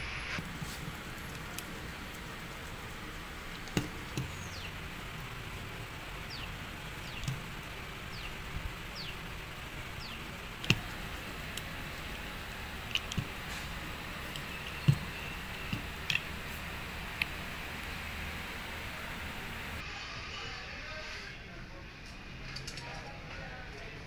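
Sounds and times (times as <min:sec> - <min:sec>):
steady hiss: 0:00.0 - 0:19.8
hand tool scraping rubber tyre: 0:10.0 - 0:17.4.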